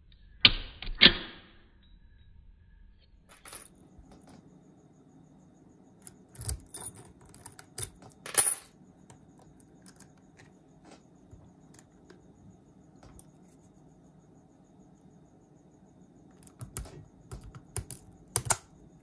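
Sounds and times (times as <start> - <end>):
padlock clicking and clinking: 6.0 - 8.7, 16.4 - 18.8.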